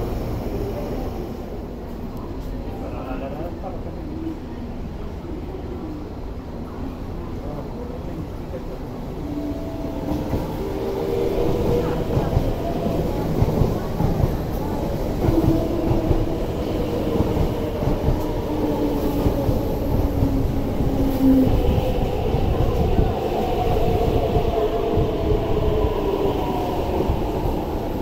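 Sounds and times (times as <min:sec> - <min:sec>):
train wheels rumbling on rails: 0:09.6 - 0:28.0.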